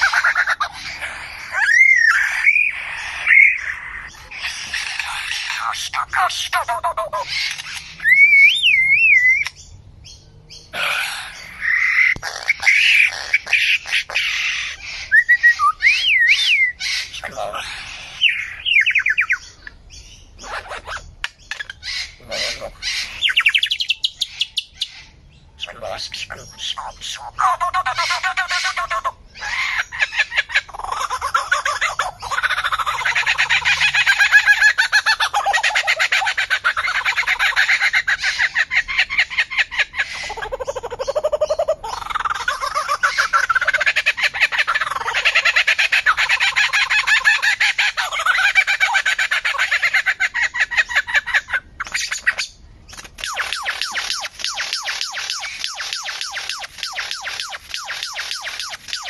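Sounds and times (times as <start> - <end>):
bird rasping calls: 0.0 - 9.6, 10.6 - 59.0
bird click: 7.4 - 7.9.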